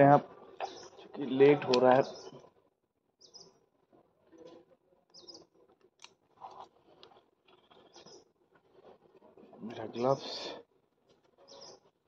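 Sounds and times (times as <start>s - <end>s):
faint bird chirps: 0.6s - 2.5s, 3.2s - 3.6s, 4.3s - 5.6s, 7.5s - 8.3s, 11.4s - 11.9s.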